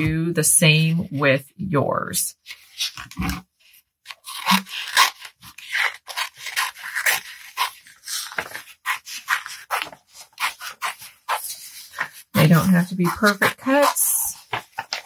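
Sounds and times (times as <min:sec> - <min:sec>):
scissors snipping paper: 0:04.1 - 0:15.0.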